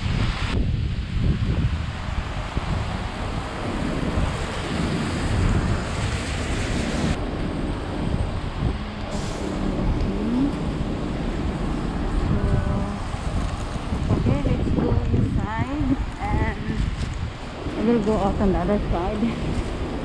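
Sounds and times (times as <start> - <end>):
heavy rain on wet street: 0.0 - 20.0
road traffic passing: 0.0 - 20.0
wind buffeting microphone: 0.0 - 20.0.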